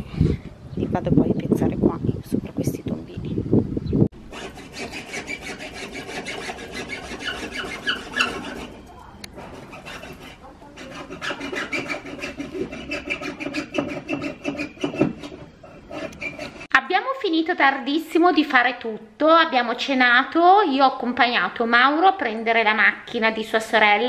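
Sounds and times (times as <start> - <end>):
hand saw rasping through plastic: 4.3 - 16.7.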